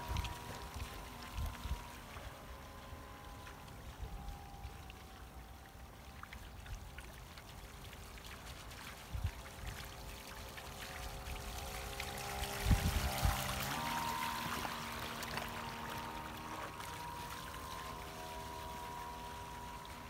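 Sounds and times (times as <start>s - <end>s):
model boat motor whine: 0.0s - 20.0s
water lapping: 0.0s - 20.0s
wind buffeting microphone: 12.3s - 13.7s.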